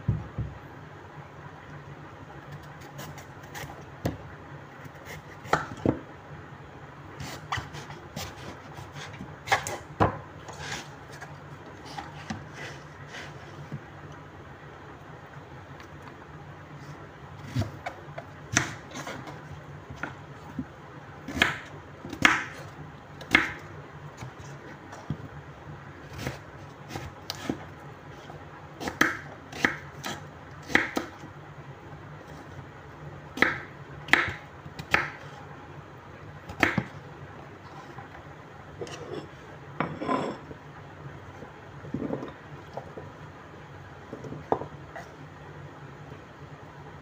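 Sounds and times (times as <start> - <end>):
steady low hum: 0.0 - 47.0
knife chopping on wooden board: 5.0 - 6.0, 28.8 - 31.2, 33.4 - 35.2, 36.5 - 36.9.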